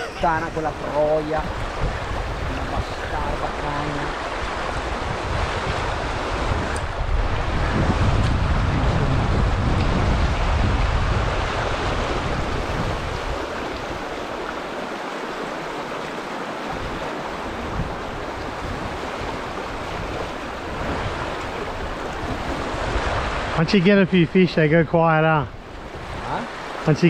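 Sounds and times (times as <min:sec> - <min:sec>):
wind rumble on microphone: 0:00.0 - 0:23.8, 0:24.6 - 0:26.9
river water rushing over rocks: 0:09.3 - 0:24.6.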